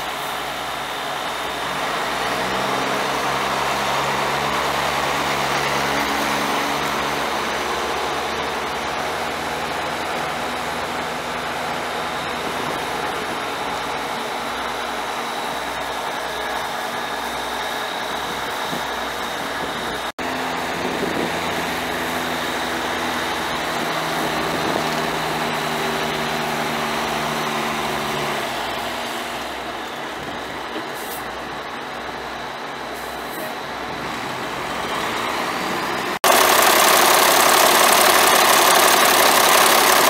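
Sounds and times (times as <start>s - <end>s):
diesel truck engine idling: 36.2s - 40.0s.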